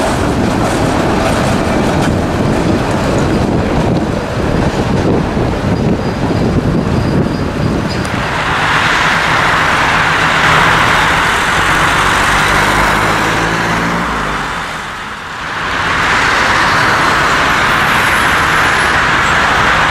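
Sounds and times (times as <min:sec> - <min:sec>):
road traffic rush: 0:00.0 - 0:19.9
vehicle engine passing by: 0:08.1 - 0:19.9.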